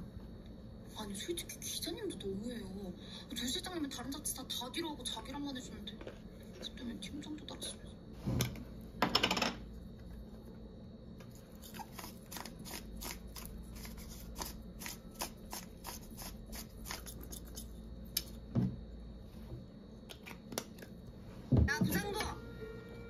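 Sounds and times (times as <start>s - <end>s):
spice grinder crunchy rattle: 11.3s - 17.8s.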